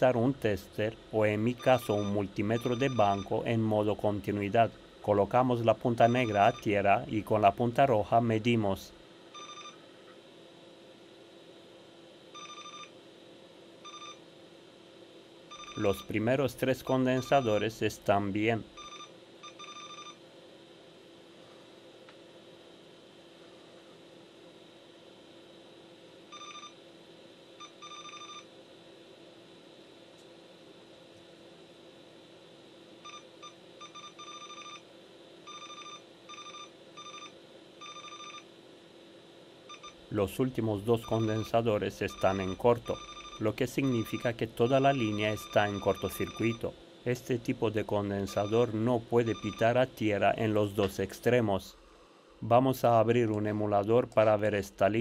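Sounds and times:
multimeter beeping: 0.6 - 4.6, 5.3 - 7.1, 9.4 - 9.8, 15.5 - 17.8, 18.8 - 20.2, 26.3 - 26.8, 27.6 - 28.5, 33.0 - 34.8, 35.5 - 38.5, 39.7 - 50.0.

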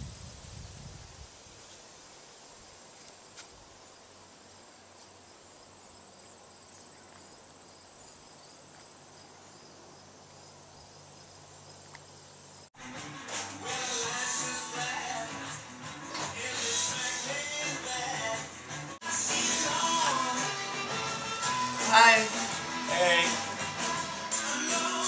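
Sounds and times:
crickets chirping: 0.0 - 12.8
music: 12.8 - 25.0.

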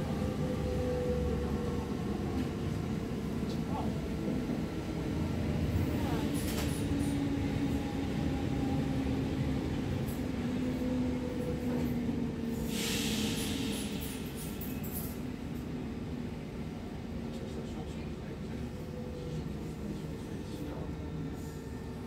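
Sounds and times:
train wheels rumbling on track: 0.0 - 22.0
burst of hiss: 12.7 - 14.2.

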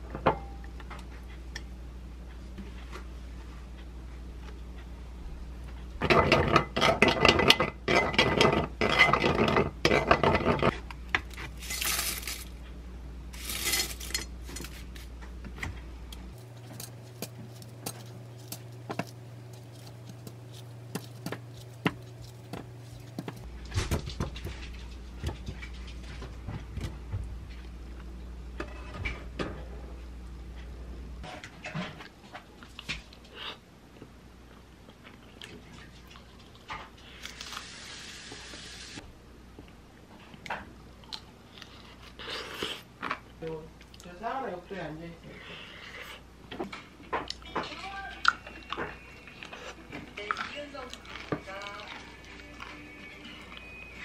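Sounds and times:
spoon stirring in ceramic bowl: 16.4 - 23.5.

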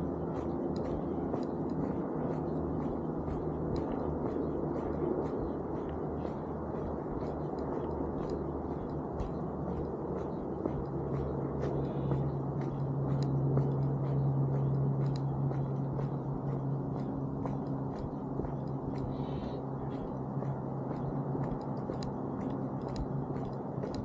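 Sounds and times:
footsteps on road: 0.0 - 24.0
low outdoor rumble: 0.0 - 24.0
steady low hum: 0.0 - 24.0.

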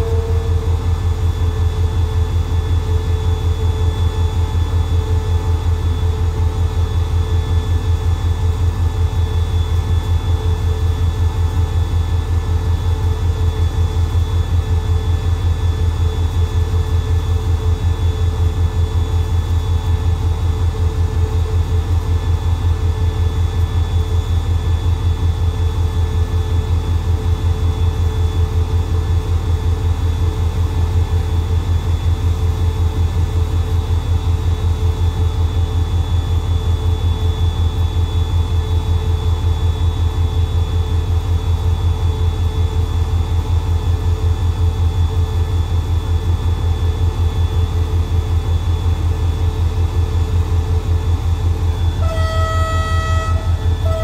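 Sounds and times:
diesel locomotive engine idling: 0.0 - 54.0.

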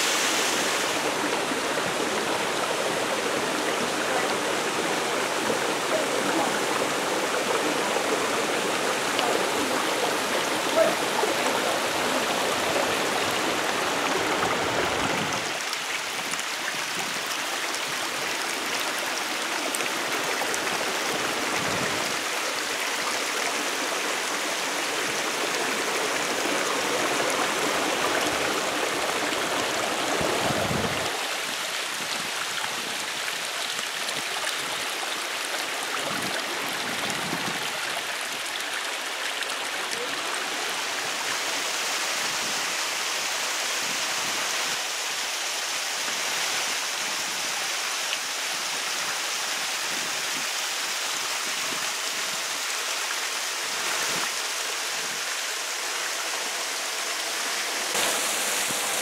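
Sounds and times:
rushing mountain water: 0.0 - 59.0.

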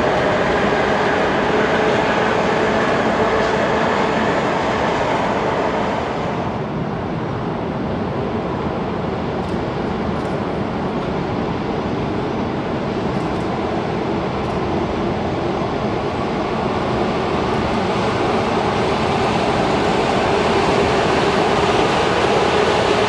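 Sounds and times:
electric train running: 0.0 - 6.5, 12.9 - 23.0
dense traffic roar: 0.0 - 23.0.

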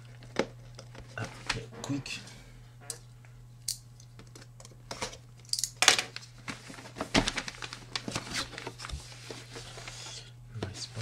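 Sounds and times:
low electrical hum: 0.0 - 11.0
cardboard box packaging rustling: 6.5 - 10.0.

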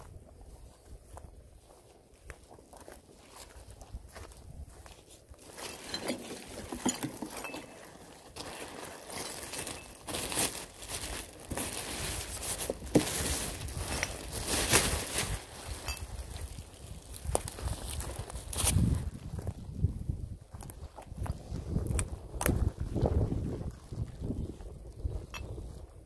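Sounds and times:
footsteps on dry leaves: 0.0 - 25.7
plastic bag rustling: 5.4 - 19.2.

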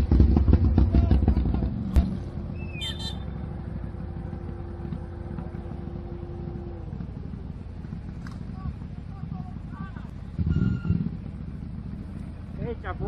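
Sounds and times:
atv engine running: 0.0 - 13.0.

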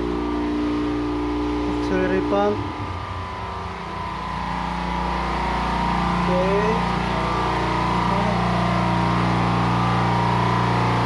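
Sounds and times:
engine-room machinery drone: 0.0 - 11.0.

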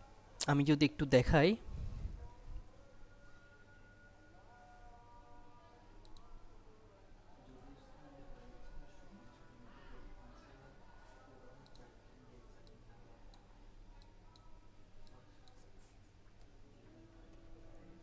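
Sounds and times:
low room hum: 0.0 - 18.0
computer mouse clicks: 6.0 - 6.3, 11.6 - 11.9.

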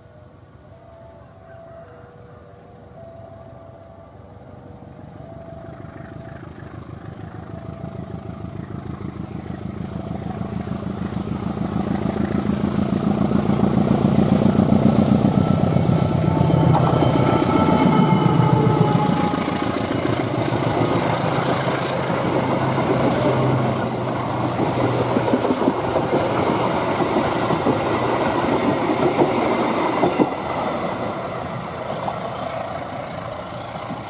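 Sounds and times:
diesel locomotive engine: 0.0 - 34.0
faint two-note tone: 0.2 - 13.1
train wheel squeal: 5.0 - 34.0.

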